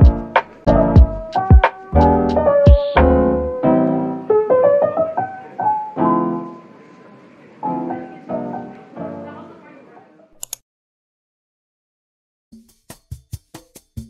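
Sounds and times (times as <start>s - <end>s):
mellow piano melody: 0.0s - 10.0s.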